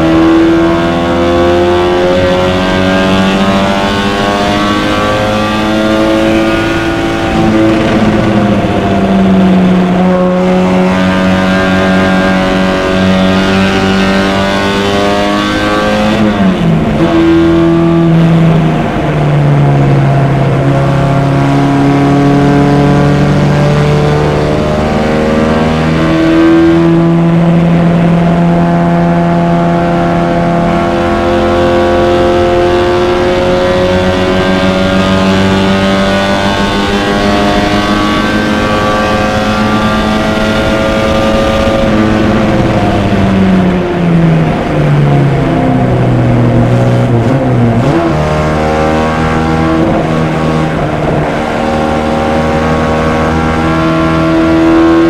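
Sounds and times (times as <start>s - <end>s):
race car engine accelerating: 0.0s - 55.0s.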